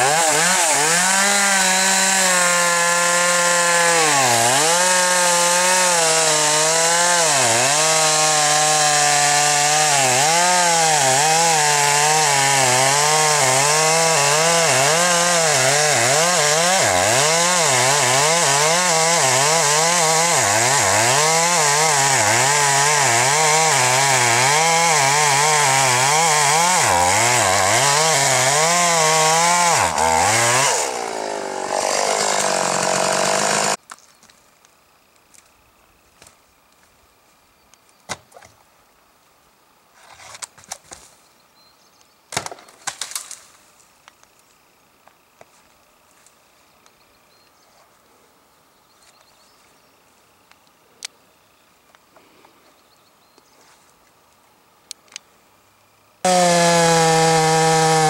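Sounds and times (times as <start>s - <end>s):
chainsaw cutting tree trunk: 0.0s - 33.8s, 56.2s - 58.0s.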